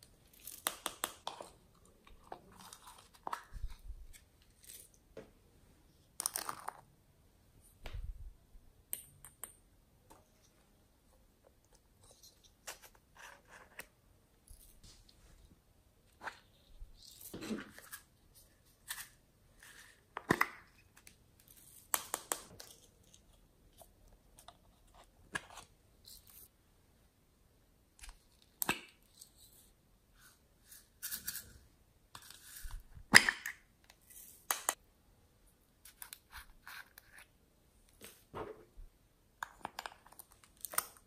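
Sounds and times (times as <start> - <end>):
hands handling small toys: 0.1 - 5.2, 6.0 - 6.9.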